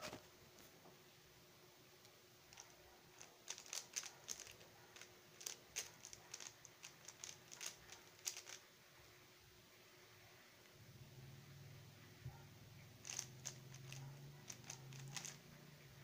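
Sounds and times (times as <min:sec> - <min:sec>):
puzzle cube plastic clicks: 0:02.5 - 0:08.6, 0:13.0 - 0:15.5.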